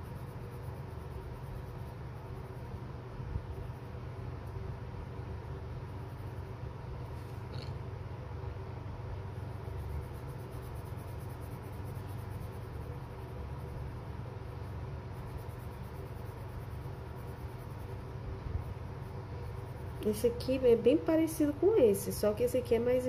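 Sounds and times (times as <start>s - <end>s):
pencil scratching on paper: 0.0s - 4.2s, 9.3s - 21.0s
low background rumble: 0.0s - 23.0s.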